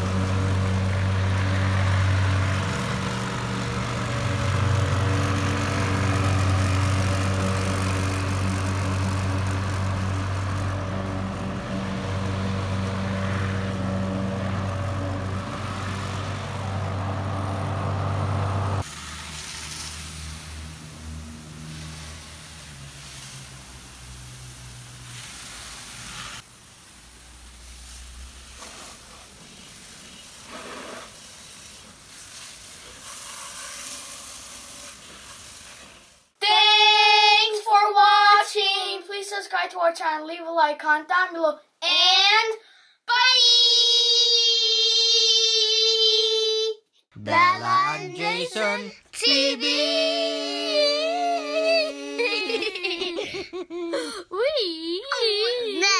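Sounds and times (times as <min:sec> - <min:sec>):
hose nozzle spraying water: 0:00.0 - 0:16.8, 0:18.8 - 0:36.3
lawn mower engine running: 0:00.0 - 0:26.3.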